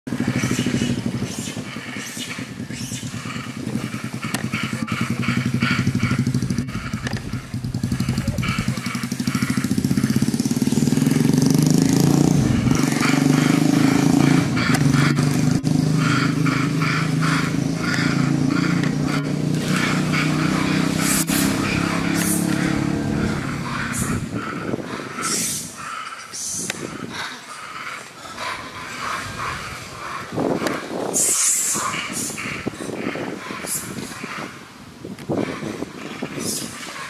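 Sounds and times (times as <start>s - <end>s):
motor engine running: 0.1s - 24.6s.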